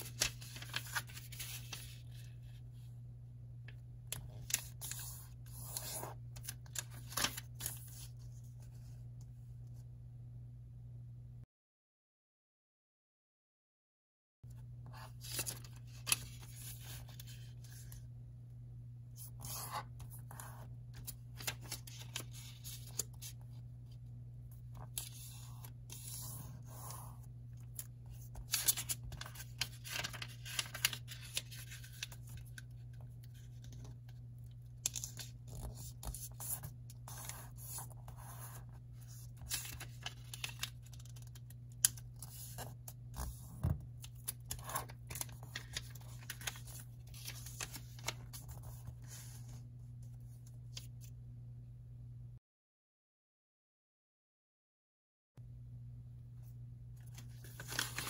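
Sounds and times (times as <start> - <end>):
paper rustling and scraping: 0.0 - 2.7, 4.2 - 8.8, 15.0 - 18.0, 19.2 - 24.0, 24.6 - 34.2, 34.8 - 49.7, 57.0 - 58.0
low steady hum: 0.0 - 11.4, 14.5 - 52.4.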